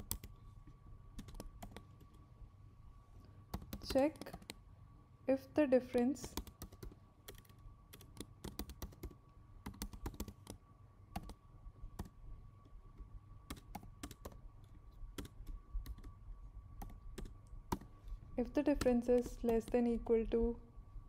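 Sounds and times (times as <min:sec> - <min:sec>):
keyboard typing: 0:00.0 - 0:00.4, 0:01.2 - 0:02.2, 0:03.5 - 0:04.6, 0:06.0 - 0:12.2, 0:13.4 - 0:16.2, 0:16.8 - 0:20.2.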